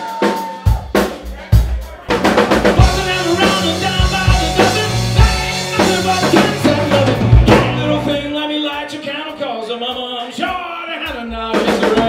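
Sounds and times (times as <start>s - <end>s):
live rock band playing: 0.0s - 12.0s
drum kit hits: 0.1s - 8.3s
electric guitar: 2.2s - 8.4s.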